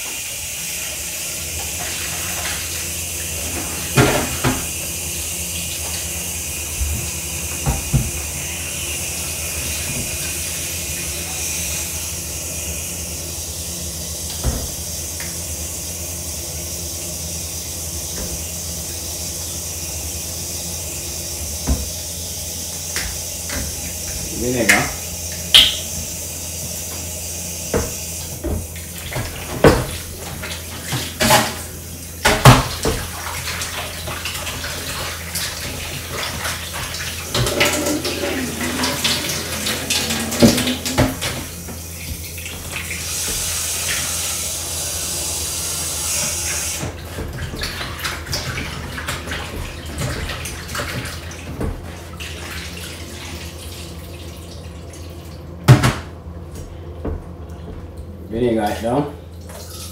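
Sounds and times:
tap water running: 0.0 - 59.9
bowl knocking against sink: 37.4 - 41.5.

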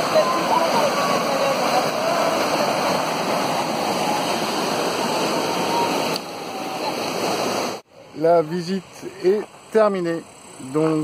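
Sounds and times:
stream rushing over boulders: 0.0 - 7.9.

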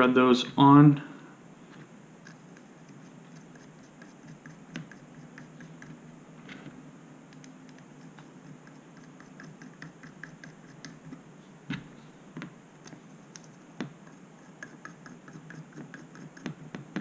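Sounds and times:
standoffs threaded by hand ticking: 7.3 - 11.2.

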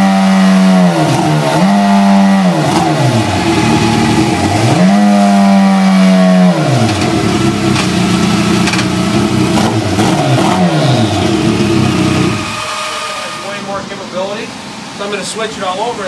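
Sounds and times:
motorcycle engine revving: 0.0 - 14.1
man talking: 13.2 - 16.0.

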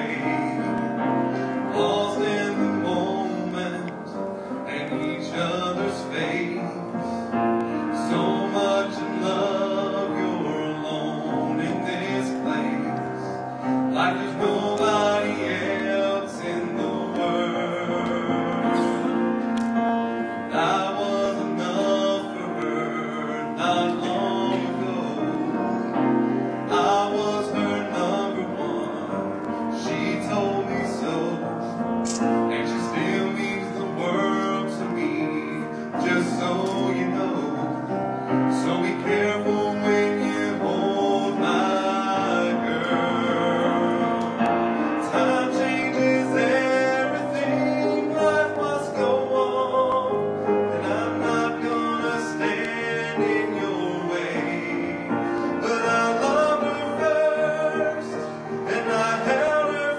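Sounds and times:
person singing: 0.0 - 7.2
piano: 0.0 - 59.9.

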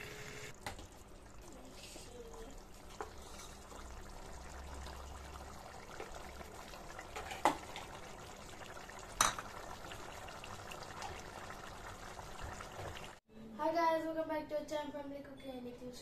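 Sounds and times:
curry simmering bubbling hiss: 0.6 - 13.2.

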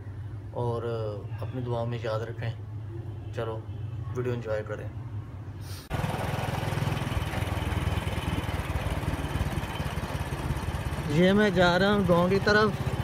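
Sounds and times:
small motorcycle engine running: 5.9 - 13.0.

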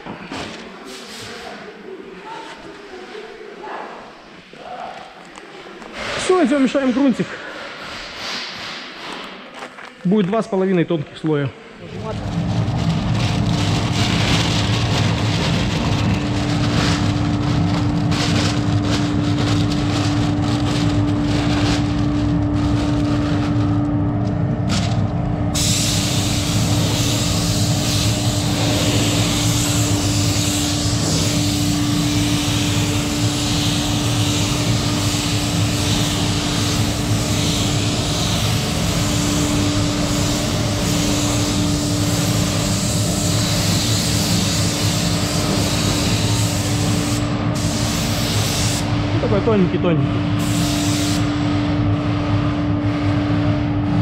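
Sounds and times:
low machinery hum: 4.8 - 54.0
masking paper rustling: 11.9 - 32.1
spray gun hissing: 25.6 - 48.9, 50.4 - 51.3.

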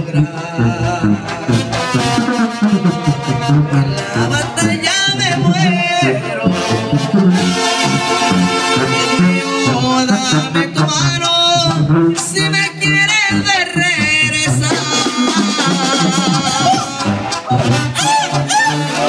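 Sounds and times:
brass melody: 0.0 - 19.0
pulsing bass line: 0.0 - 19.0
drums: 14.3 - 19.0.

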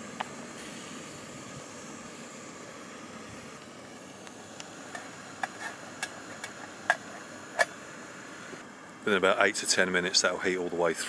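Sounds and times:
stove burner hissing: 0.0 - 11.0.

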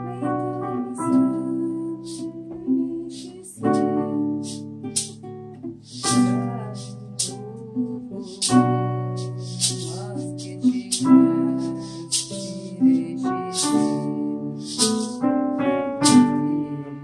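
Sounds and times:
acoustic guitar chords: 0.0 - 17.0
piano chords: 0.0 - 17.0
short bright rhythmic hits: 3.6 - 7.4, 8.2 - 16.4.

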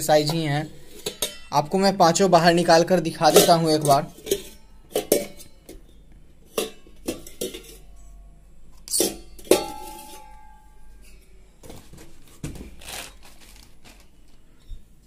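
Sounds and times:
metal pots clinking and knocking: 0.2 - 1.9, 2.9 - 8.1, 8.8 - 13.0
struck pot ringing: 9.0 - 11.4.

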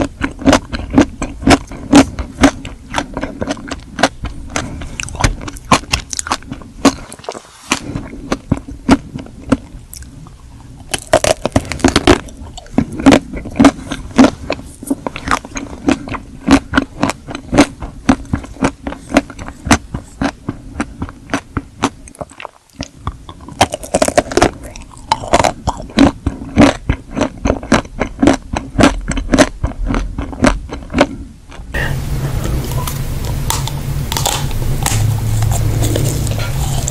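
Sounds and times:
chewing: 0.0 - 36.9
chocolate shell crunching: 10.9 - 14.6, 31.8 - 36.9.

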